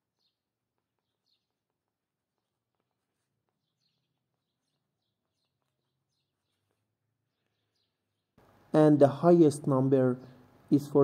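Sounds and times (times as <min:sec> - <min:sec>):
faint bird chirps: 0:00.0 - 0:08.5.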